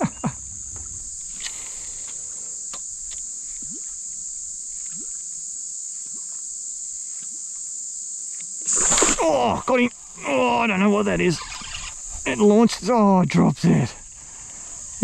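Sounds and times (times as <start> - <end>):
insects droning: 0.0 - 15.0
small chirps: 11.3 - 12.3.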